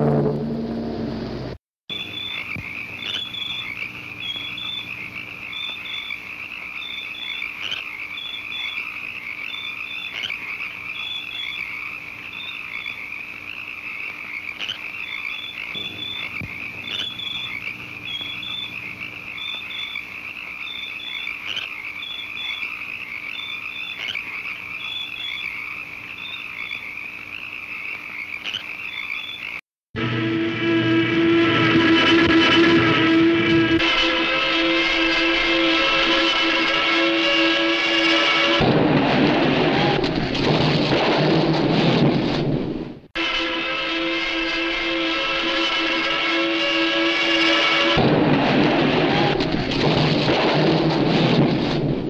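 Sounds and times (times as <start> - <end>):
frogs trilling: 1.9 - 29.6
high frog peeps: 1.9 - 29.6.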